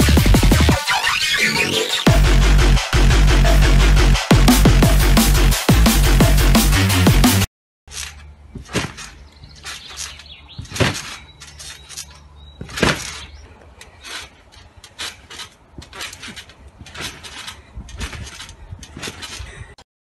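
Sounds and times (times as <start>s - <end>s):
trampoline springs squeaking and thumping: 0.0s - 2.1s, 7.9s - 19.9s.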